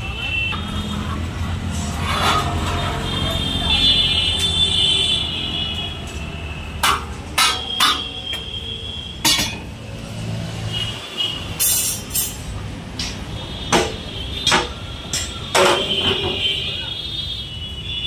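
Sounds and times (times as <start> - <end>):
sharp knocks and clinks: 9.2 - 9.8.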